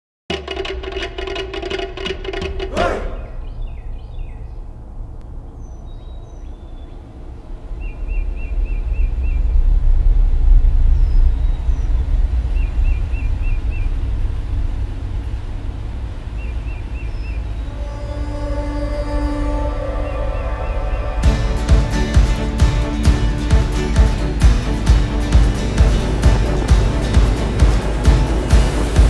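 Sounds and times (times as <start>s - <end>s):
low rumble: 2.6s - 29.0s
high whistled bird notes: 2.7s - 4.4s
birds chirping: 2.7s - 9.8s, 10.8s - 14.1s, 16.1s - 17.9s, 19.8s - 29.0s.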